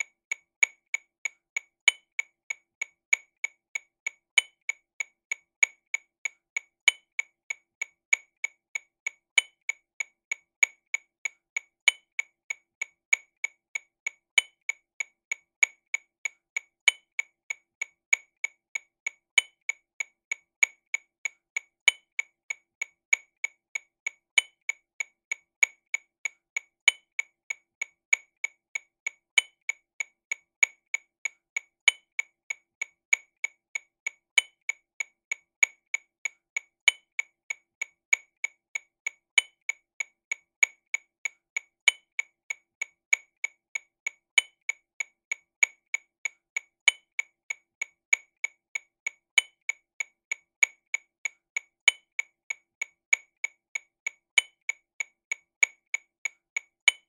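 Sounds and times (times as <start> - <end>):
accented metronome click: 0.0 - 57.0
metronome clicking: 31.8 - 32.2, 36.8 - 37.2, 41.8 - 42.2, 46.8 - 47.2, 51.3 - 52.2.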